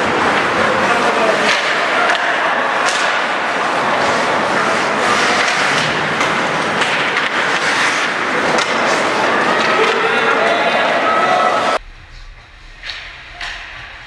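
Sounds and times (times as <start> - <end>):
skates on ice: 0.0 - 10.6.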